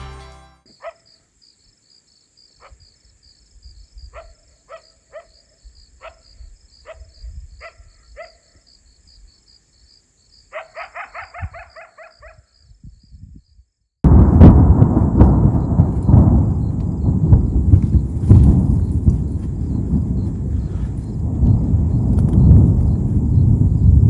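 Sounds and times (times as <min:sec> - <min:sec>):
crickets trilling: 0:00.7 - 0:24.0
dog yelping: 0:00.8 - 0:01.1, 0:06.8 - 0:08.4, 0:10.5 - 0:12.5.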